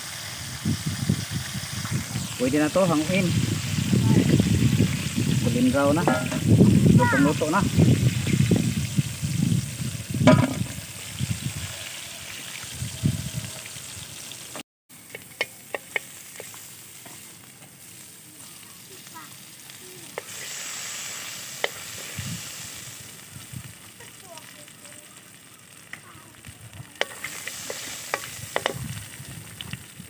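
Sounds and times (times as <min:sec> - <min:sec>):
hot oil sizzling in a wok: 0:00.0 - 0:30.0
strainer knocking against pan: 0:06.0 - 0:06.5, 0:10.2 - 0:10.8.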